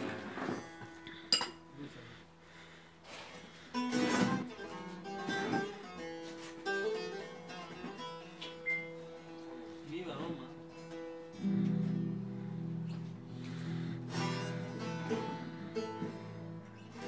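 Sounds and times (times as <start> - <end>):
long-necked lute folk melody: 3.5 - 17.0.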